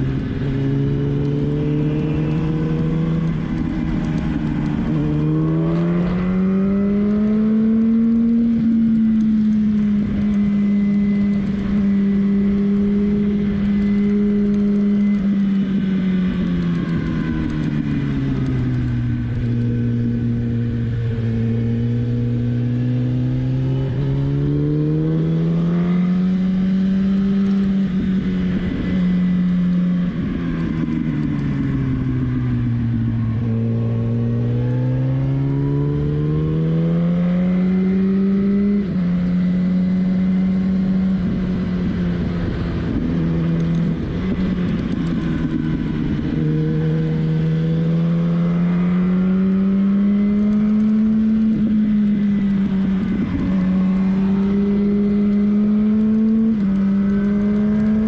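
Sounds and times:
motorcycle engine revving through gears: 0.0s - 58.0s
wind and road noise: 0.0s - 58.0s.

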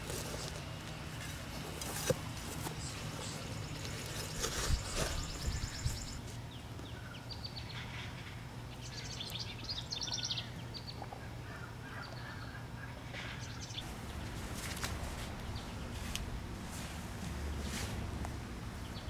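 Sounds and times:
low background noise: 0.0s - 19.0s
small birds chirping: 2.6s - 14.4s, 15.1s - 16.1s, 18.8s - 19.0s.

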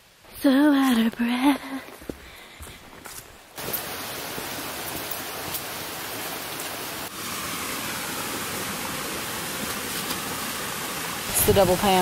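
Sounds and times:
waterfall rushing into a pool: 3.6s - 12.0s.

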